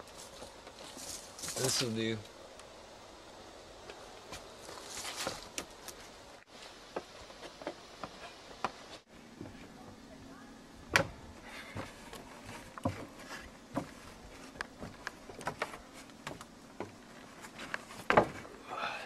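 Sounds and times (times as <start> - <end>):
rustle: 0.0 - 9.8, 11.3 - 19.0
knocks and creaks on wooden boards: 6.9 - 9.6, 10.9 - 18.5.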